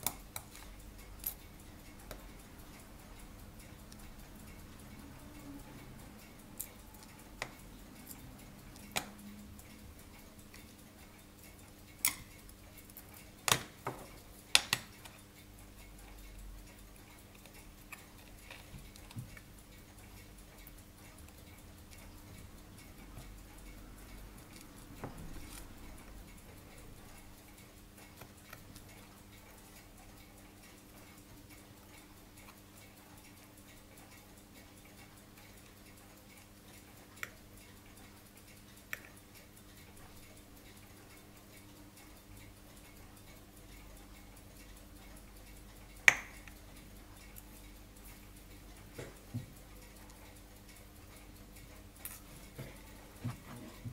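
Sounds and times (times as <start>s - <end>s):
metal tweezers clicking: 0.0s - 2.4s, 45.8s - 52.3s
faint steady hum: 0.0s - 53.9s.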